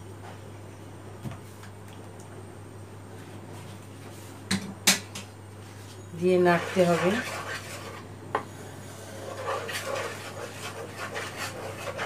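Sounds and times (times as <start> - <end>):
wooden spatula scraping a pan: 6.2 - 8.0, 8.8 - 12.0.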